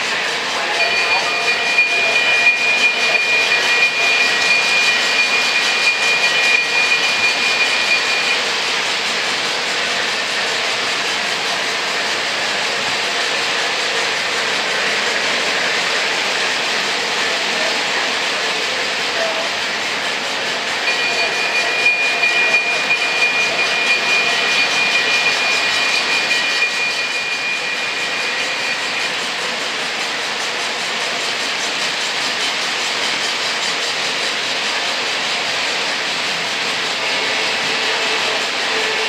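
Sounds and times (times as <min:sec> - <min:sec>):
thin high whine: 0:00.0 - 0:10.9, 0:18.8 - 0:31.6
model train wheels rumbling: 0:00.0 - 0:39.0.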